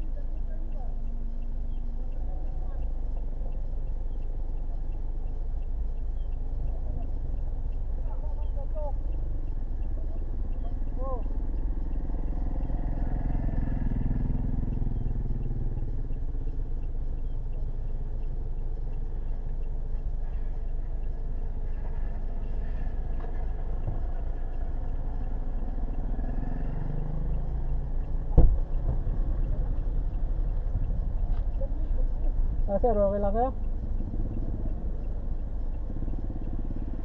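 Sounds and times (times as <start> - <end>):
vehicle engine idling: 0.0 - 37.0
sharp knock: 28.3 - 28.6.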